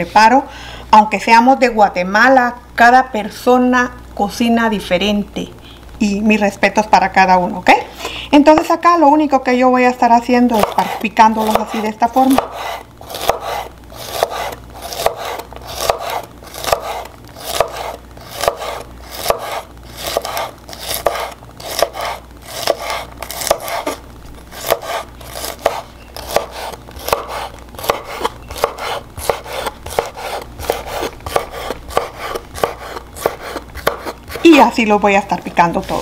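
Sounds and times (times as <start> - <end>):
knife chopping on wooden board: 10.6 - 24.0, 24.6 - 34.4.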